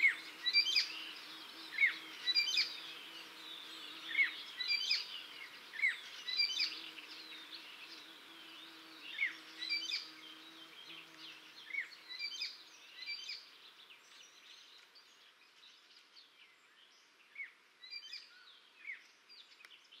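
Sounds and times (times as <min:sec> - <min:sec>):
warbler singing: 0:00.0 - 0:20.0.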